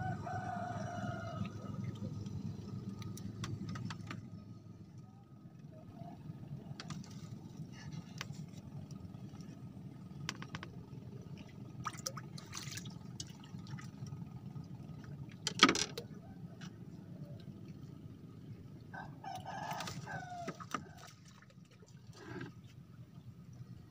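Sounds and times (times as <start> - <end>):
low steady rumble: 0.0 - 23.9
water lapping and sloshing: 0.0 - 23.9.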